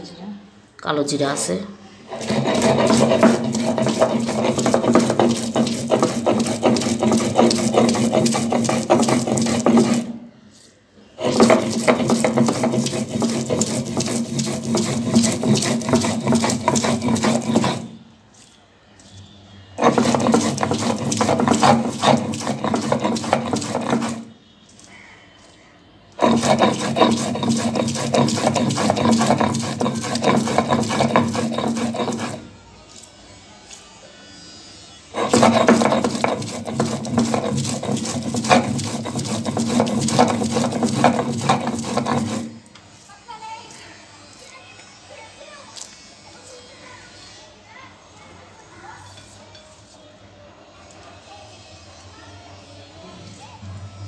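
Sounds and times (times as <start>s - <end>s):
stone roller grinding on stone slab: 2.1s - 10.3s, 11.2s - 18.0s, 19.8s - 24.4s, 26.1s - 32.6s, 35.1s - 42.8s.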